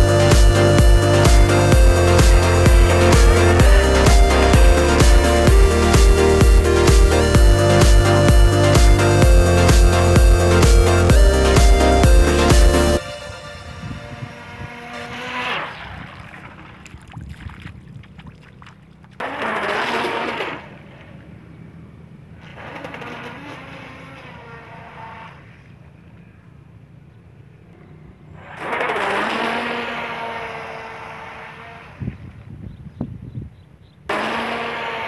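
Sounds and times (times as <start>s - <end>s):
model boat motor whining: 0.0s - 16.9s, 19.2s - 32.5s, 34.1s - 35.0s.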